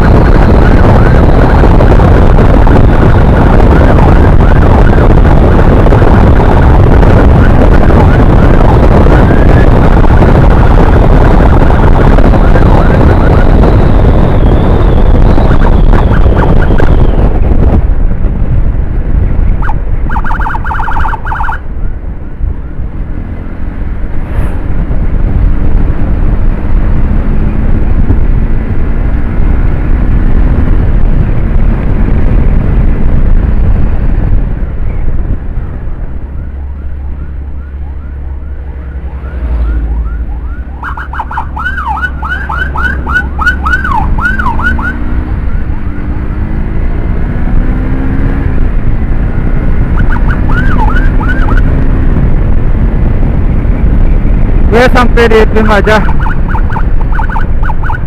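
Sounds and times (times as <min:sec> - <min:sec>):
wind and road rumble: 0:00.0 - 0:58.0
electronic siren yelping: 0:02.8 - 0:17.1, 0:19.6 - 0:21.7, 0:36.3 - 0:45.8, 0:49.9 - 0:51.8, 0:55.7 - 0:58.0.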